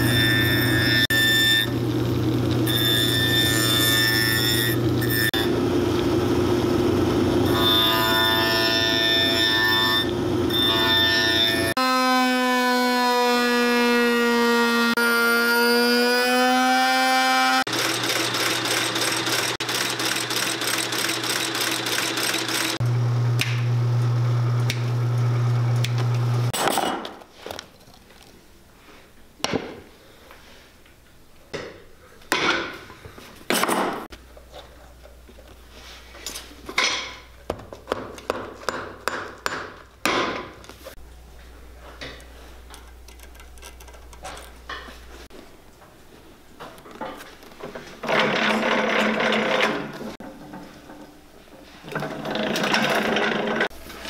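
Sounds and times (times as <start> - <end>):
stitching machine clattering: 17.7 - 22.8, 48.0 - 49.9, 51.9 - 53.7.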